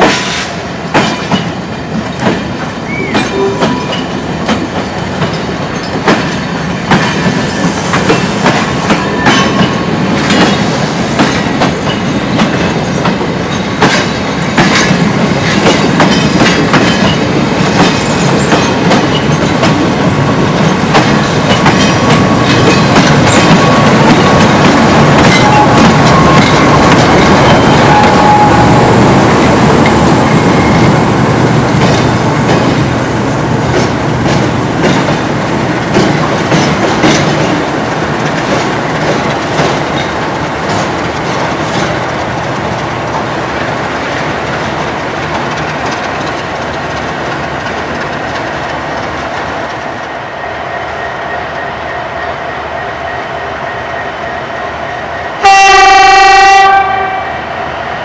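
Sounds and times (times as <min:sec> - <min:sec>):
train rolling past: 0:00.0 - 0:58.0
wheels clicking over rail joints: 0:33.7 - 0:49.9.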